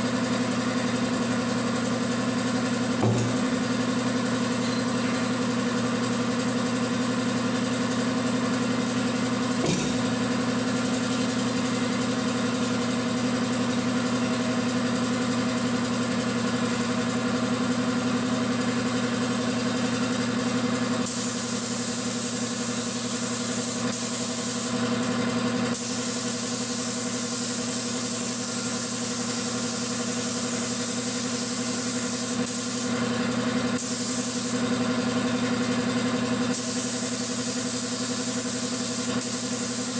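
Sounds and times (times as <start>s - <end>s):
air compressor motor humming: 0.0s - 39.9s
spray gun air hissing: 21.0s - 24.8s, 25.7s - 33.0s, 33.8s - 34.6s, 36.5s - 39.9s.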